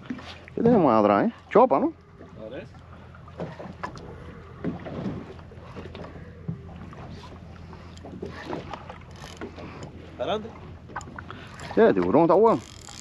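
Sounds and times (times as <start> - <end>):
fishing boat hum: 0.0 - 13.0.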